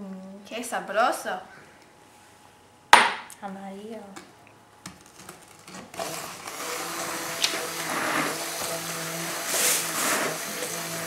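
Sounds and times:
immersion blender motor whine: 0:05.8 - 0:11.0.

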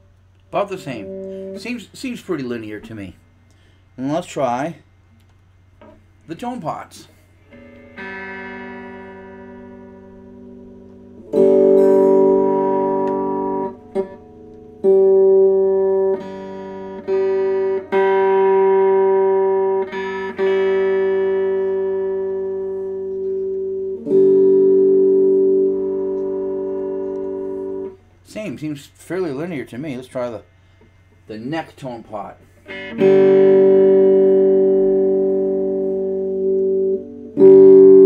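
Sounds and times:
electric guitar chord strummed: 0:00.6 - 0:03.0, 0:07.4 - 0:28.0, 0:32.2 - 0:38.0.

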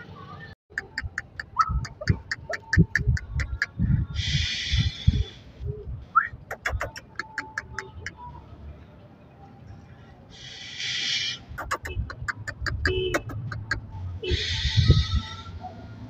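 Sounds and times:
burst of hiss: 0:04.2 - 0:05.5, 0:10.4 - 0:11.5.

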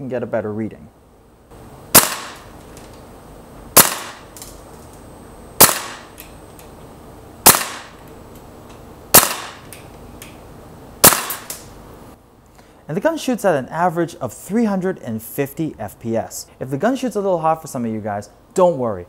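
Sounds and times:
airsoft rifle shots cracking: 0:01.9 - 0:02.6, 0:03.8 - 0:04.5, 0:05.6 - 0:06.2, 0:07.4 - 0:08.0, 0:09.1 - 0:09.7, 0:11.0 - 0:11.7.

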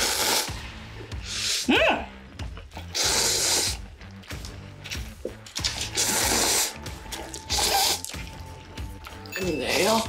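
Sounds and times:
noodles being slurped: 0:00.0 - 0:00.6, 0:02.7 - 0:09.3
background music: 0:00.0 - 0:10.0.

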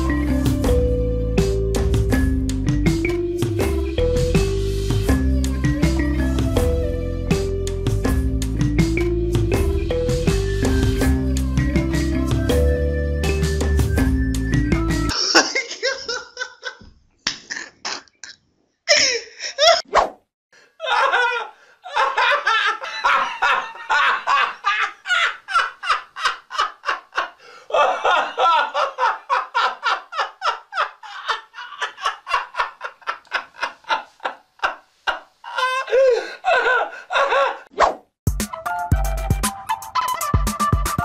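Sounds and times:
music with a beat: 0:00.0 - 0:15.1, 0:38.3 - 0:41.0
person laughing hard: 0:15.1 - 0:16.9, 0:18.9 - 0:19.9, 0:20.8 - 0:37.7.

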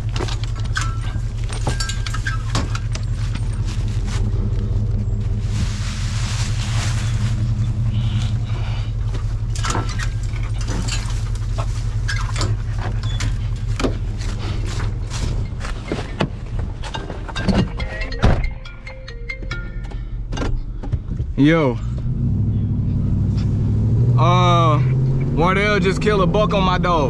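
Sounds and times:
metal gates clicking and clanking: 0:00.0 - 0:03.8, 0:09.4 - 0:14.2
truck engine idling: 0:00.0 - 0:27.0.

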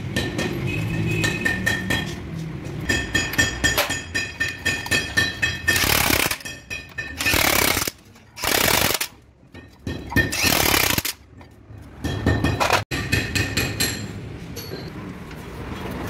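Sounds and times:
sharp metallic knocks: 0:00.0 - 0:07.8, 0:08.8 - 0:14.9
impact wrench hammering: 0:02.8 - 0:11.4, 0:12.0 - 0:14.1.

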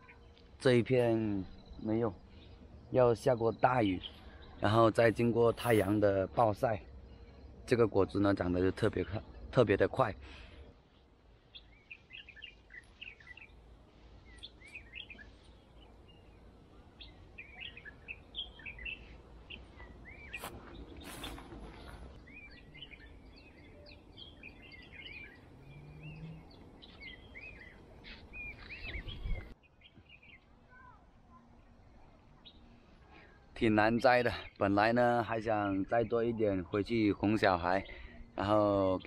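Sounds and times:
small birds chirping: 0:00.0 - 0:39.0
brief rustling: 0:20.3 - 0:22.2.

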